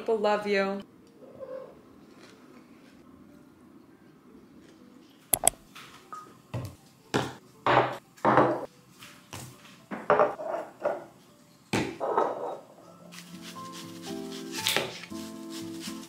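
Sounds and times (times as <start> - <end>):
bottles knocking on countertop: 7.2 - 8.6, 10.0 - 10.4.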